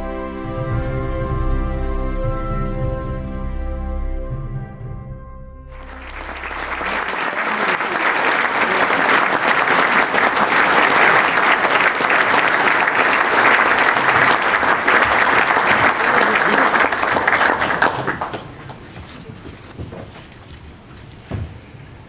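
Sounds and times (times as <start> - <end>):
music: 0.0 - 7.0
audience applause: 5.8 - 19.0.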